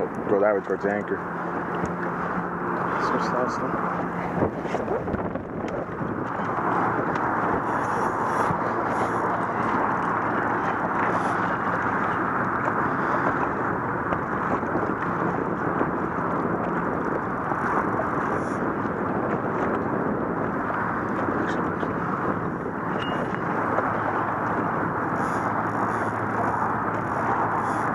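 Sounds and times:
choppy water around boat: 0.0s - 27.9s
wind rushing: 2.2s - 11.6s.

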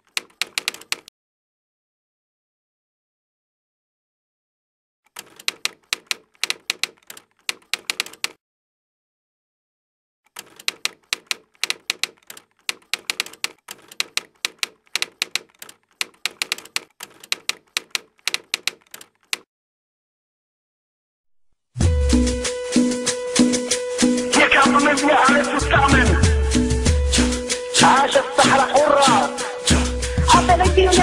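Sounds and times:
typewriter keys clacking: 0.0s - 1.1s, 5.1s - 8.4s, 10.3s - 19.5s.

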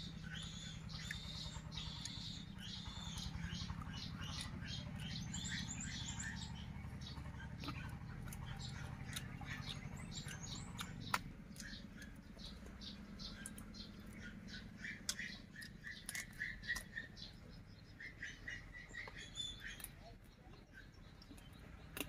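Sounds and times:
bird chirping: 0.0s - 22.0s
chewing and lip-smacking: 0.4s - 22.0s.

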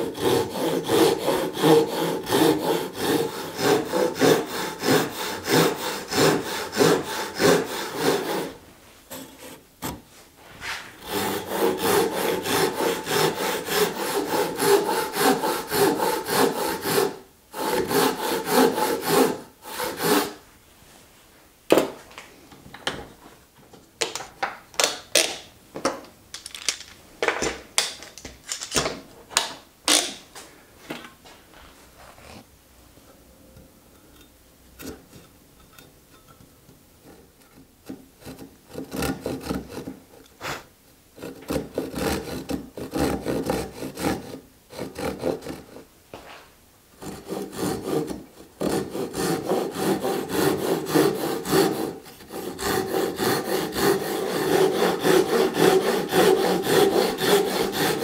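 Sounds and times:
handsaw cutting wood: 0.0s - 10.0s, 10.6s - 20.4s, 37.8s - 45.8s, 47.0s - 58.0s.

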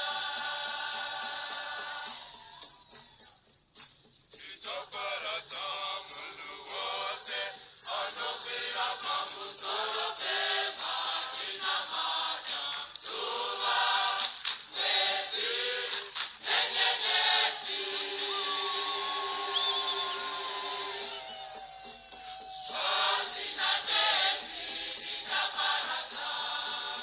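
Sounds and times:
choir singing over a beat: 0.0s - 3.0s, 4.3s - 27.0s.

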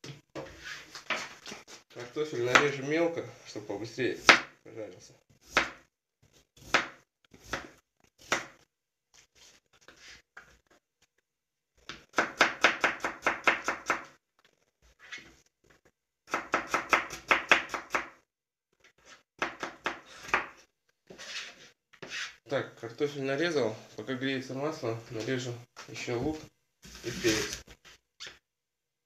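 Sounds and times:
knife chopping potato on board: 4.2s - 4.5s, 5.4s - 5.9s, 6.6s - 8.6s, 11.9s - 14.1s, 16.3s - 18.2s, 19.4s - 20.6s.

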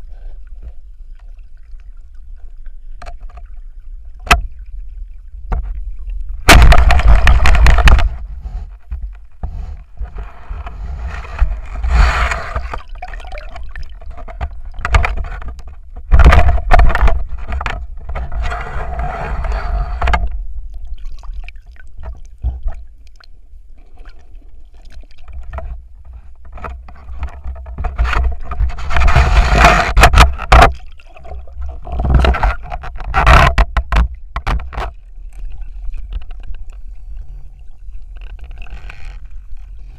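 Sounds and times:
underwater water rushing and gurgling: 0.0s - 39.9s
sharp knocks and scrapes: 5.5s - 5.8s, 6.4s - 12.9s, 13.6s - 20.4s, 25.2s - 36.9s.

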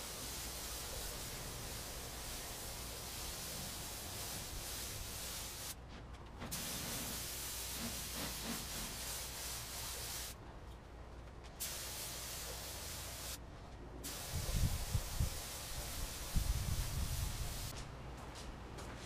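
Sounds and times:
paint spray gun hissing: 0.0s - 5.8s, 6.5s - 10.4s, 11.6s - 13.4s, 14.1s - 17.7s.

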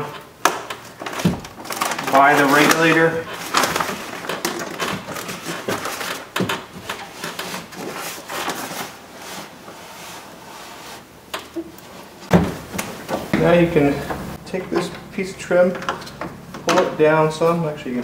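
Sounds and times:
plastic sheet rustling: 0.8s - 11.1s.

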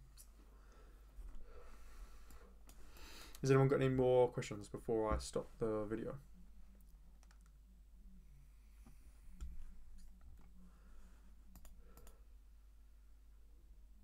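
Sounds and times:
low electrical hum: 0.0s - 14.0s
computer mouse clicks: 7.2s - 7.6s, 11.5s - 12.2s.

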